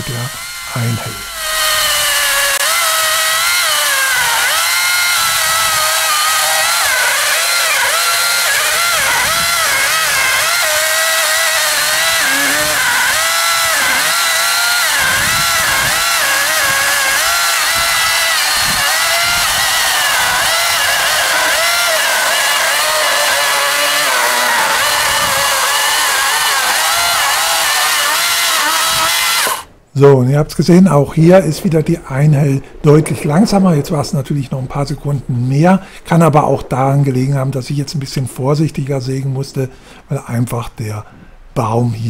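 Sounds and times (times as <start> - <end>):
electric chainsaw cutting log: 0.0 - 29.8.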